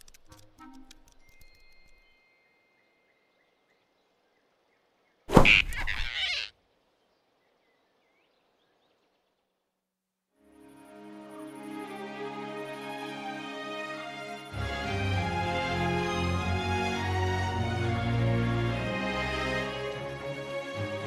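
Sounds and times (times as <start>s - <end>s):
cartoon swipe-and-grab: 5.3s - 6.2s.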